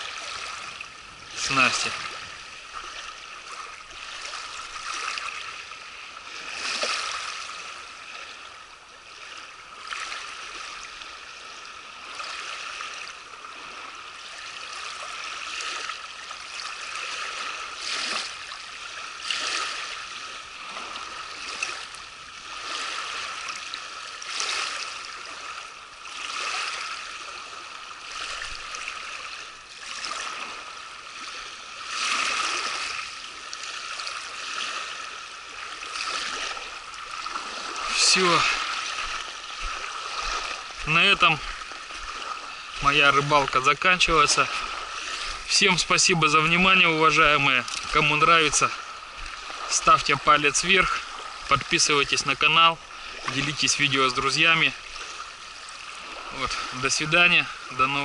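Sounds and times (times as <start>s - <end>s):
waves lapping on bank: 0.0s - 58.0s.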